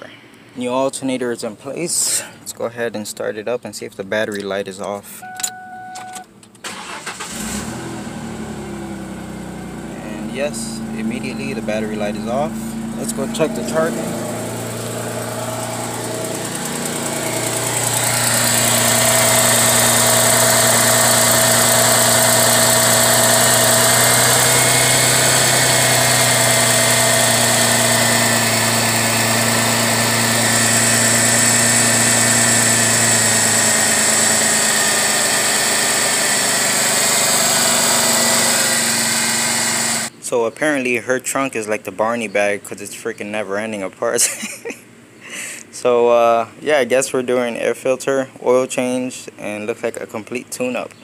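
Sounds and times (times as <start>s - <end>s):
car engine idling: 6.7s - 40.1s.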